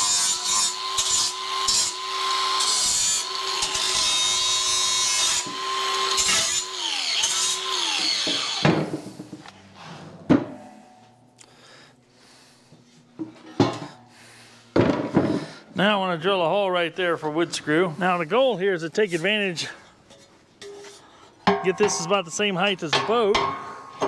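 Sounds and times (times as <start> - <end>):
angle grinder whining: 0.0 - 8.8
metallic knocks: 21.5 - 22.2.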